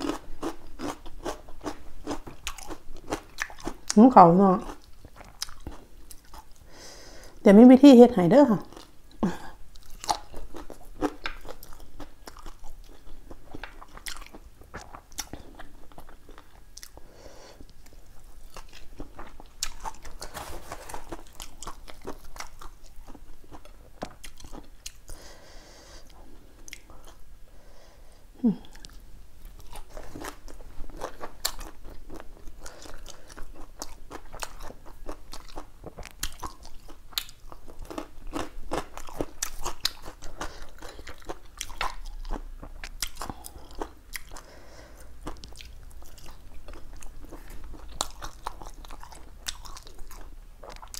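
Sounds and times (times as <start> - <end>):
person chewing food: 0.0 - 4.0, 4.6 - 7.4, 8.7 - 27.3, 28.5 - 50.9
crisp crunches: 19.6 - 22.2
person humming: 28.4 - 28.8.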